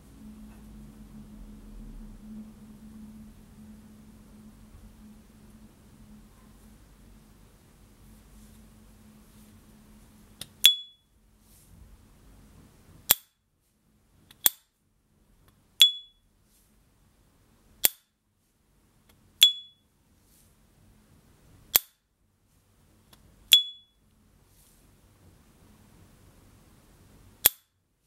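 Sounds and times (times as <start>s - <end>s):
high metallic ping: 10.6s - 11.1s, 15.8s - 16.2s, 19.4s - 19.8s, 23.5s - 24.0s.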